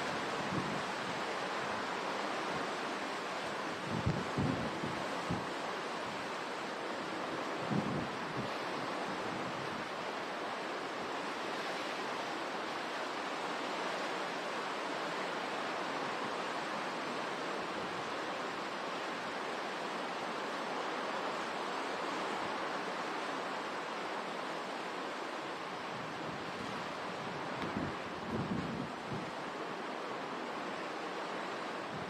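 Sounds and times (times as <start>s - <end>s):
hurricane wind: 0.0s - 32.0s
driving rain: 24.7s - 32.0s.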